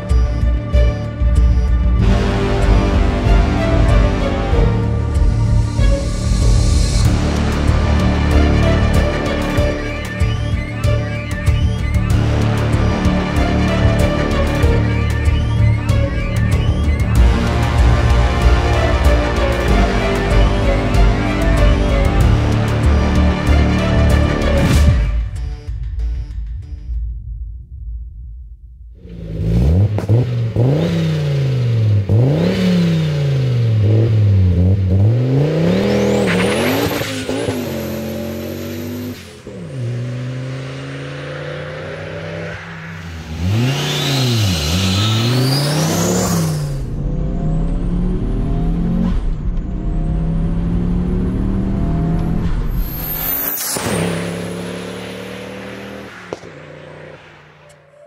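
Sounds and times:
turbo engine accelerating: 0.0s - 26.8s, 29.0s - 58.0s
turbo whistle: 9.0s - 18.6s.

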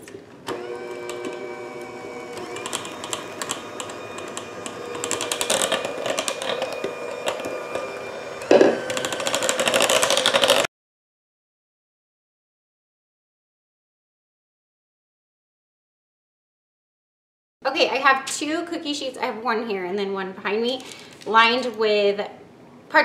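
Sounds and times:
electric hand mixer whine: 0.5s - 10.7s.

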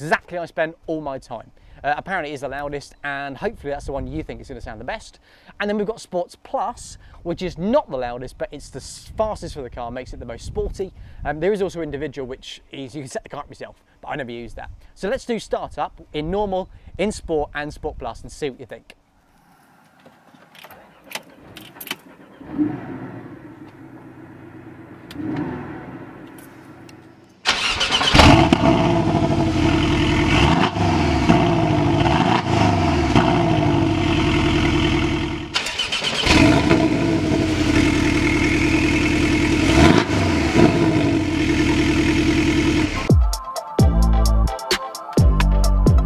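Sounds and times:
car engine starting: 20.2s - 43.1s
car engine idling: 20.4s - 43.1s.

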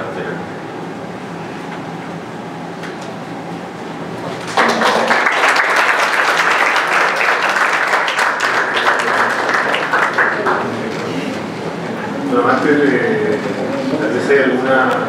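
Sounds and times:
audience applause: 4.4s - 11.4s.

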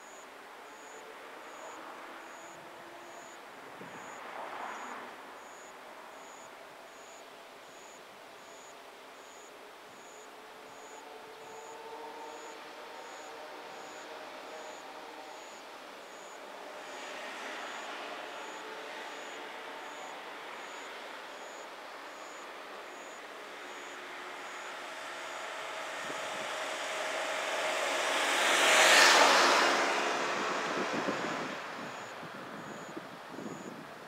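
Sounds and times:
vehicle passing by: 24.8s - 32.9s.

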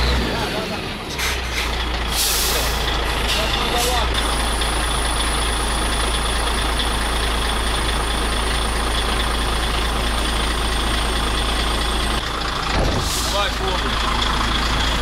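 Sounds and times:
diesel truck engine idling: 0.0s - 15.0s.

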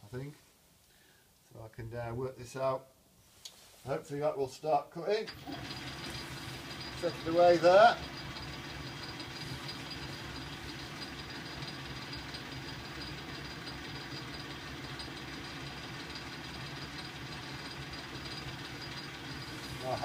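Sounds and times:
lathe motor and gear hum: 5.3s - 20.0s.

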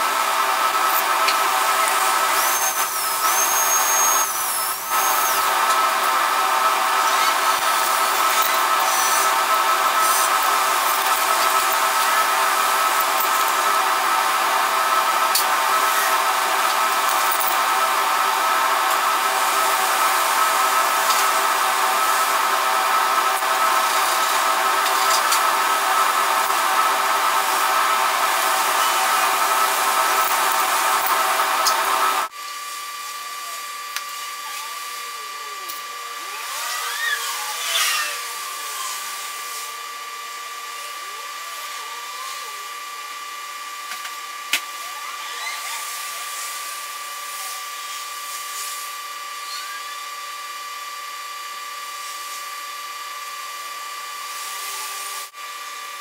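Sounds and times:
welding torch flame hissing: 0.0s - 32.8s.

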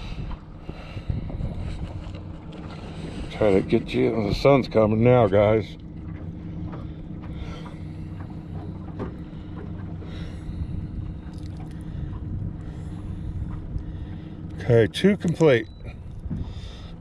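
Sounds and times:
wind on microphone: 0.0s - 4.5s, 15.8s - 16.8s
boat motor humming: 0.0s - 17.0s.

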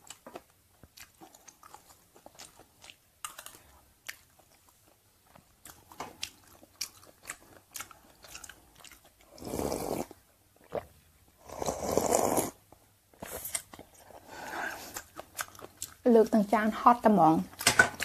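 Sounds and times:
close chewing with mouth clicks: 0.0s - 16.4s, 17.4s - 18.0s
loud slurping of soup: 9.3s - 10.2s, 11.4s - 12.6s.

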